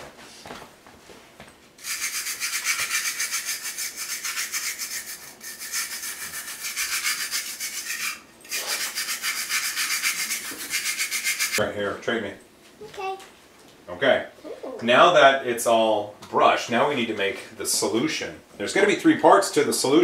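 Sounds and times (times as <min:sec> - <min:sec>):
wire brush scrubbing plastic: 0:01.8 - 0:11.6.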